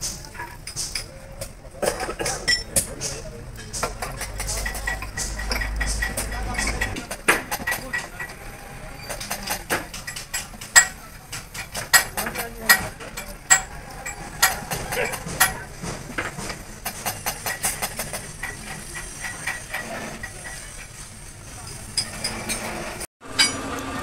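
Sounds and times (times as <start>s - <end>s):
metal part clinking in metal basin: 3.6s - 6.9s.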